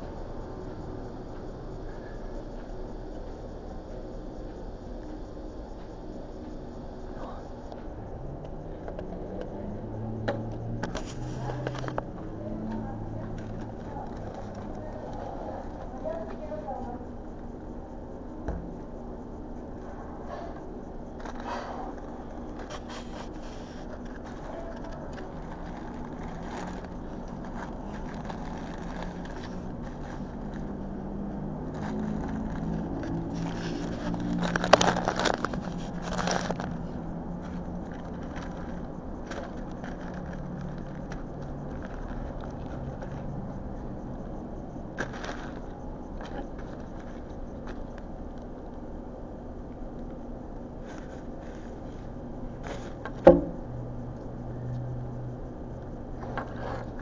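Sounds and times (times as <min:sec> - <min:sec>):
background rumble: 0:00.0 - 0:57.0
paper wrappers rustling: 0:21.2 - 0:43.3, 0:45.0 - 0:48.5.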